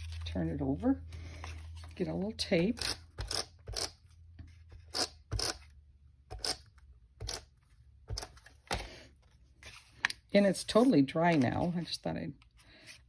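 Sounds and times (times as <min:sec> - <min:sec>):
paper and tape rustling: 0:00.0 - 0:02.3, 0:07.6 - 0:13.0.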